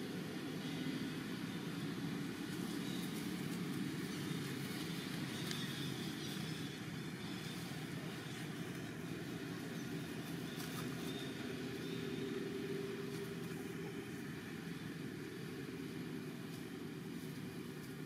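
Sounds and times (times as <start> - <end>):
low outdoor rumble: 0.0 - 18.0.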